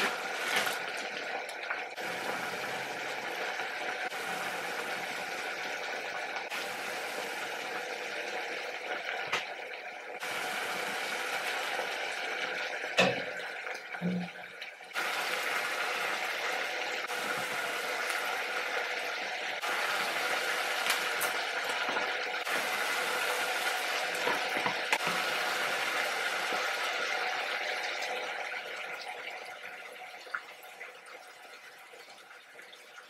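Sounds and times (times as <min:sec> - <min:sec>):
water boiling in a pan: 0:00.0 - 0:33.0.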